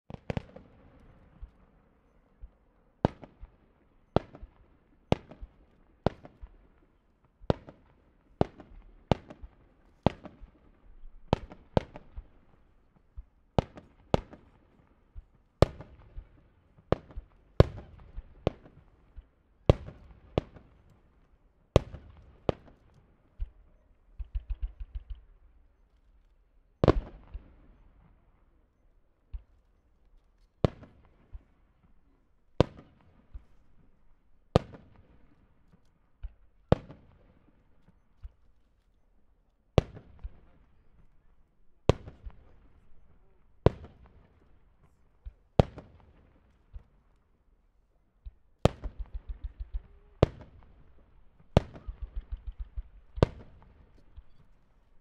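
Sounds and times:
crackling firework pops: 0:00.1 - 0:01.6, 0:11.3 - 0:12.3, 0:21.8 - 0:26.1, 0:29.3 - 0:29.7, 0:35.6 - 0:37.2, 0:41.9 - 0:42.9, 0:43.6 - 0:46.9, 0:48.2 - 0:54.6.

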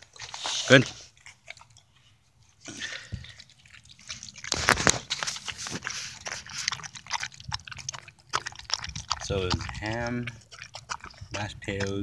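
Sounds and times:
dog eating from metal bowl: 0:00.0 - 0:12.0.

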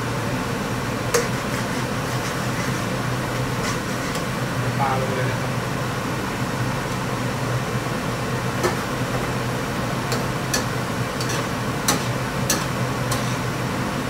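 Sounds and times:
low fan-like hum: 0:00.0 - 0:14.0
utensil clicking against frying pan: 0:10.1 - 0:13.3.

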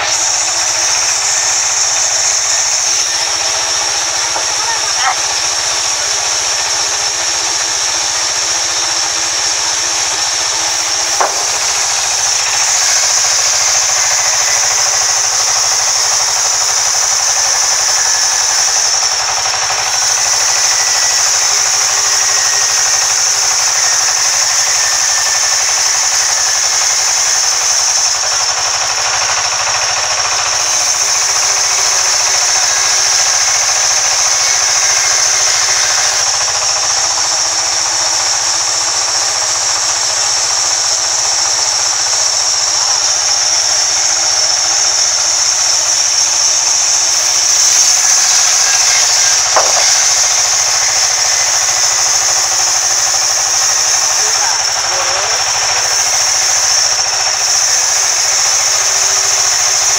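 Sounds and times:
band saw blade hissing in wood: 0:00.0 - 0:59.9
band saw machine running: 0:00.0 - 0:59.9
short knock: 0:49.6 - 0:50.0.

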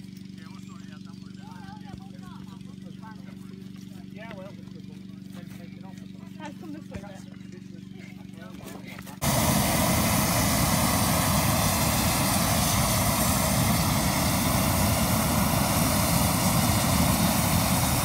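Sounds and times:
propane burner roaring: 0:09.2 - 0:18.0.

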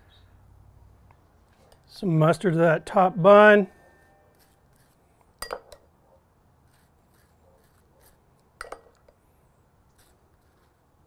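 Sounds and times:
knife scraping on bun: 0:03.9 - 0:05.2, 0:06.6 - 0:08.4, 0:09.9 - 0:10.8.

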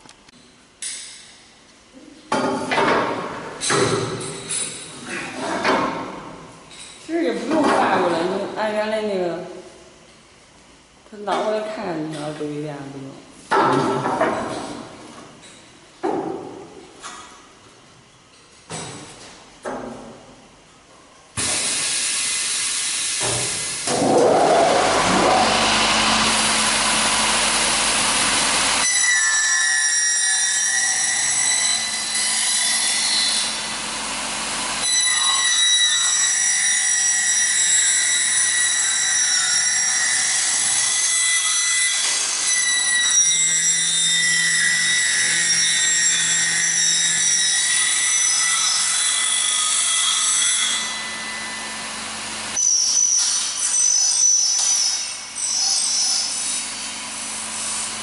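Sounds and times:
rushing hiss: 0:21.4 - 0:23.9.

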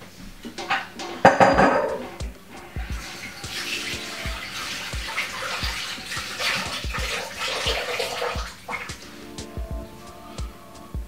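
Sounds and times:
water running from a tap: 0:00.6 - 0:09.2
background music with bass beat: 0:00.6 - 0:11.0.

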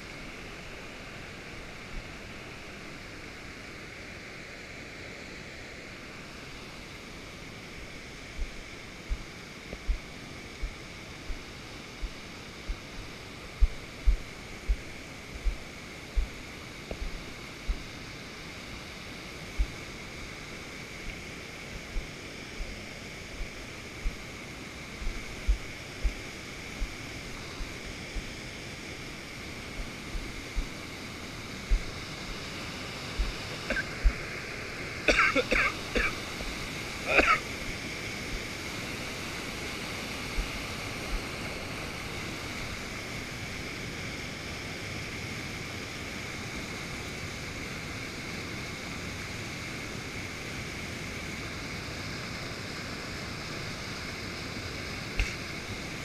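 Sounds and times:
waterfall rushing: 0:07.9 - 0:43.0.

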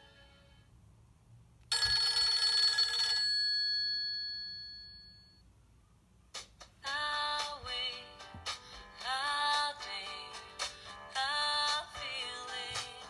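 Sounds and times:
phone ringtone: 0:01.7 - 0:05.4.

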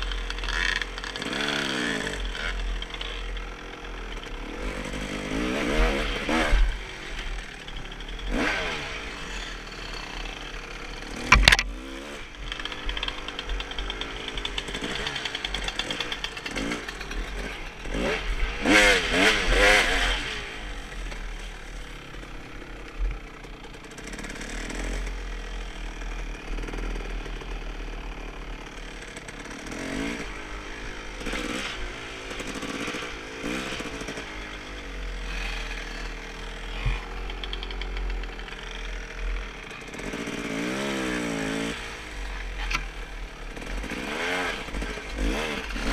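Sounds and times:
dirt bike engine revving: 0:00.0 - 0:45.9.

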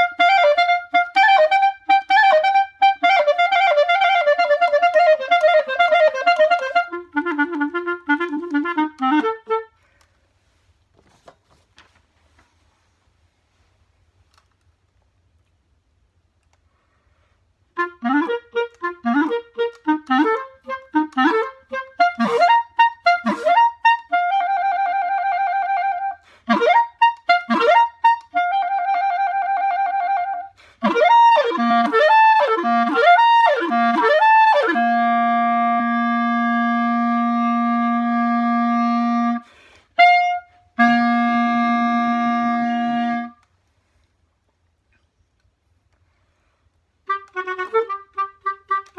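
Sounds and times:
solo clarinet: 0:00.0 - 0:10.7, 0:17.7 - 0:44.0, 0:47.0 - 0:48.9
breath: 0:39.4 - 0:39.9.

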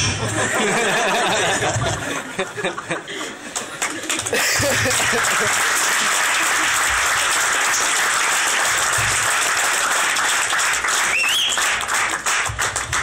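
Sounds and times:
audience applauding: 0:03.4 - 0:13.0
rising whistle: 0:11.1 - 0:11.7.

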